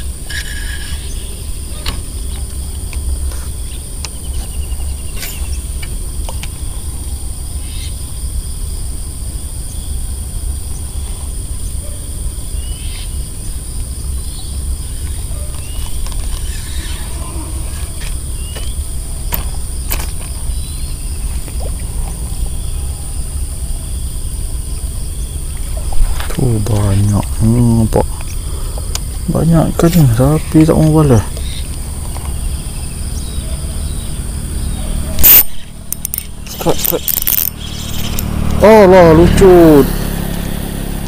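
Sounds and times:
insect drone: 0.0 - 41.0
bird chirps: 3.3 - 5.8, 10.7 - 39.2
sharp clicks: 35.2 - 38.6.

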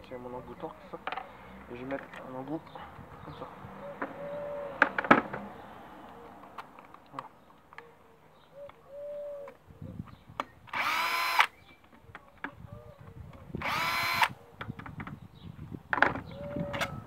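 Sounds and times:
cordless drill motor whine: 10.7 - 11.5, 13.6 - 14.4.

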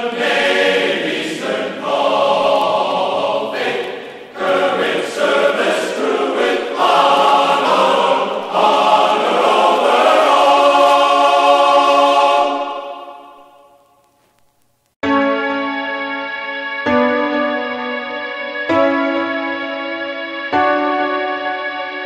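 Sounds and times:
choir-like sustained chords: 0.0 - 13.8.

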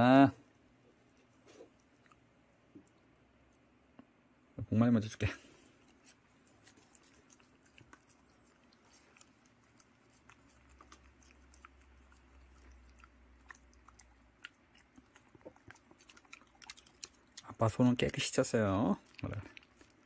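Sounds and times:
dog chewing and licking: 5.8 - 20.0.

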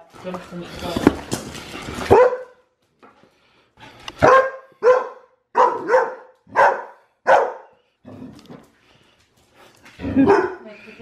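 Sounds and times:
dog barking: 2.1 - 2.6, 4.2 - 7.8, 10.2 - 10.7.

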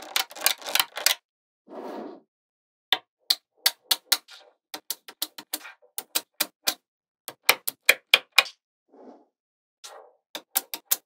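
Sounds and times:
magnetic balls clicking together: 0.0 - 1.2, 3.3 - 8.5, 10.4 - 11.0.

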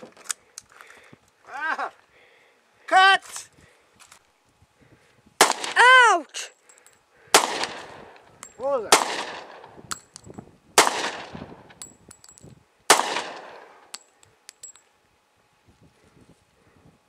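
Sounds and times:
handgun shots echoing: 7.4 - 8.0, 8.9 - 9.7, 10.8 - 11.4, 12.9 - 14.0.

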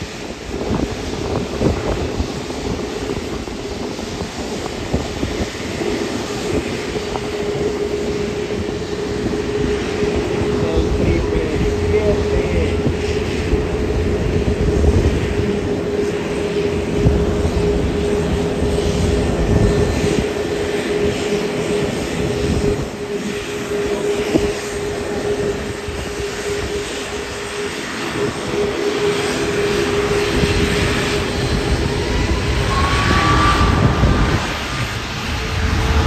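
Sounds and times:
jet engines whining: 0.0 - 36.0
higher rising tone: 7.7 - 36.0.

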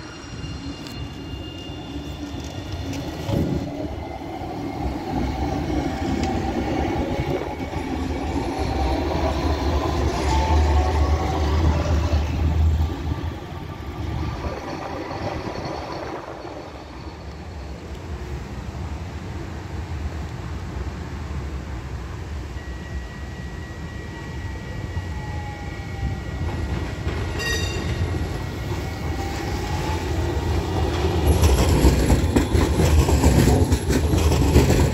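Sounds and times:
tram wheels rumbling on rails: 0.0 - 22.4, 23.0 - 34.9
faint high whine: 22.4 - 26.4.

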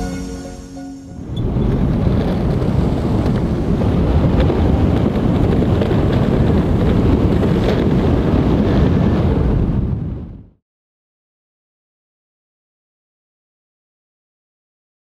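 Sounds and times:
wind buffeting microphone: 1.2 - 10.5
skateboard wheels rolling on concrete: 1.4 - 10.0.

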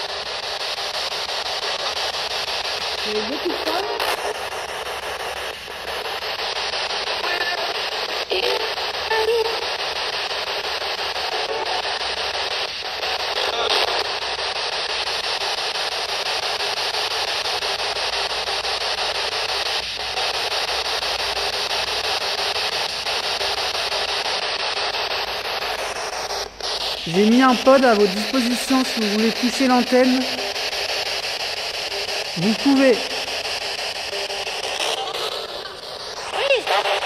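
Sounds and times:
radio static hiss: 0.0 - 37.0.

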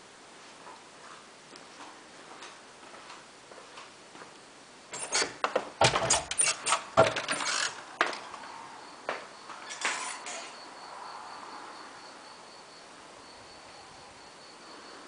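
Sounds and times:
heavy door thumps: 7.0 - 7.3.

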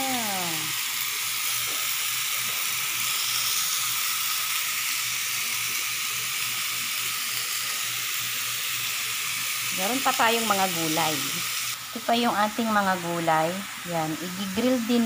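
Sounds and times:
chicken sizzling on grill pan: 0.0 - 15.0.

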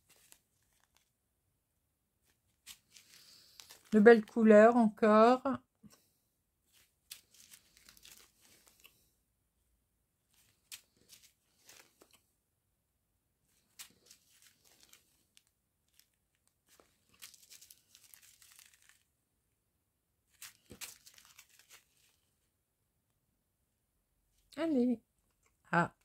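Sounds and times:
plastic bags crinkling: 0.0 - 1.1, 2.2 - 4.4, 6.7 - 8.9, 10.3 - 12.2, 13.6 - 19.1, 20.3 - 22.2.

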